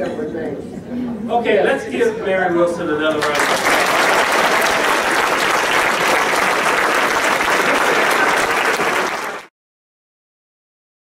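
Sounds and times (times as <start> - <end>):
audience applauding: 3.2 - 9.5.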